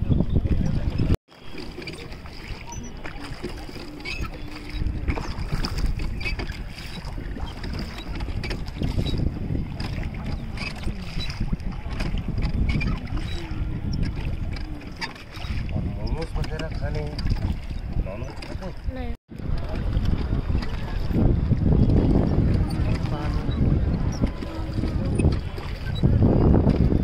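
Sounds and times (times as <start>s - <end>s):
wind rumble on microphone: 0.0s - 27.0s
oars splashing in water: 0.5s - 27.0s.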